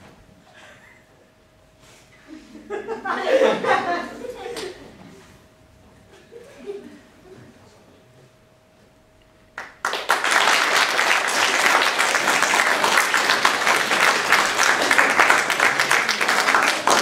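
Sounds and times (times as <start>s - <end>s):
audience applauding: 9.6s - 17.0s.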